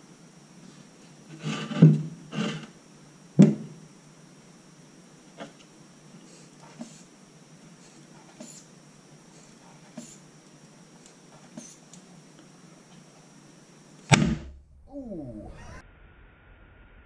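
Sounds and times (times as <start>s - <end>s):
wooden planks straining: 1.3s - 2.7s.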